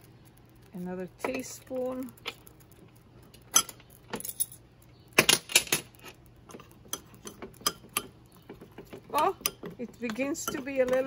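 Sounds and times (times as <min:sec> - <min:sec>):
spoon clinking and scraping pan: 0:06.8 - 0:08.2, 0:09.4 - 0:11.0.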